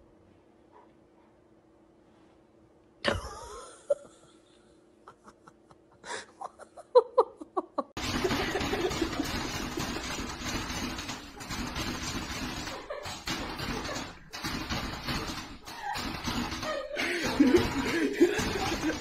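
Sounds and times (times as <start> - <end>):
person laughing: 3.1 - 10.0, 12.6 - 14.3, 15.6 - 19.0.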